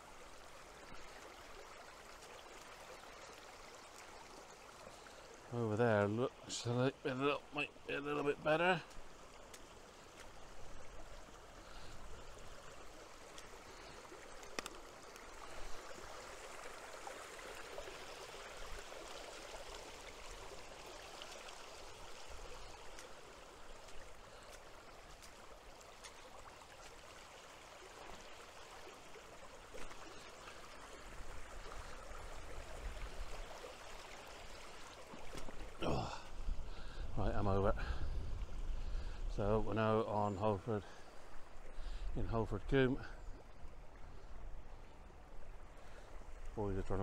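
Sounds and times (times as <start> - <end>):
stream water rushing: 0.0 - 47.0
faint clicks: 14.3 - 15.3.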